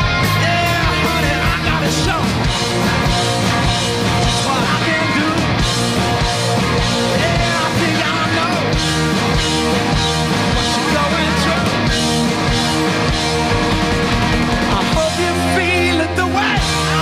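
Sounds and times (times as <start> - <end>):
drums with crashing cymbals: 0.0 - 15.8
electric guitars and bass: 0.0 - 17.0
man singing: 0.1 - 2.5, 4.2 - 5.6, 7.0 - 8.8, 10.7 - 11.8, 14.6 - 17.0.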